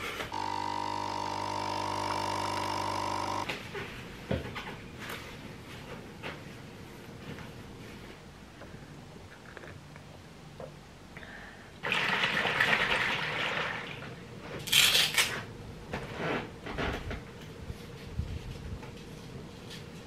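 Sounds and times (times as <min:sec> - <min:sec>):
rustles and knocks of handling: 0:03.5 - 0:08.4.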